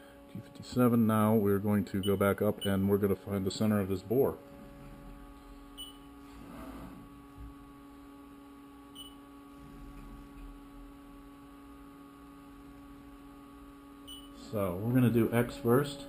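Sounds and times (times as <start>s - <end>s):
milling machine humming: 2.4s - 16.0s
machine head whirring: 12.8s - 16.0s.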